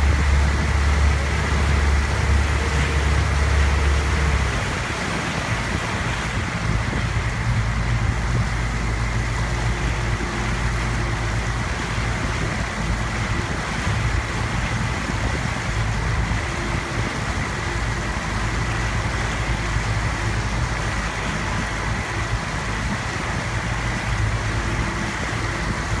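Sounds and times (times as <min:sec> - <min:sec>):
motorboat engine droning: 0:00.0 - 0:26.0
water rushing in wake: 0:00.0 - 0:26.0.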